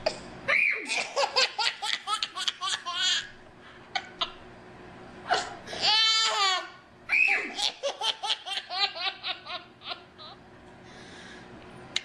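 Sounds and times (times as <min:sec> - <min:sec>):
baby laughing: 0:00.9 - 0:03.3, 0:05.8 - 0:06.8, 0:07.4 - 0:10.4.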